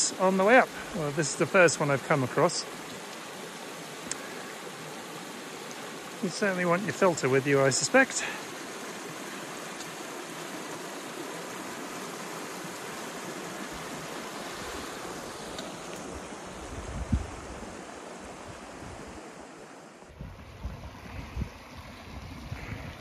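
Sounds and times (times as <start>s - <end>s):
creek rushing over rocks: 0.0s - 23.0s
wind gusts on microphone: 13.7s - 23.0s.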